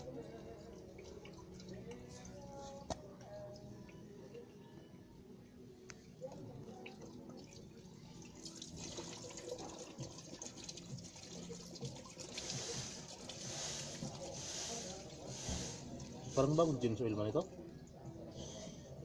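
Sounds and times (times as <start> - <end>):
oil trickling into container: 0.1 - 3.6, 6.5 - 18.1.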